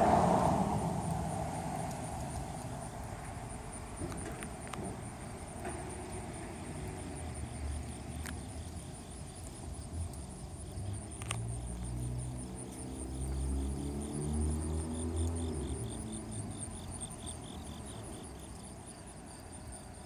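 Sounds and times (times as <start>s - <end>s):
low rumble: 0.0s - 6.2s
insects chirping: 0.0s - 20.0s.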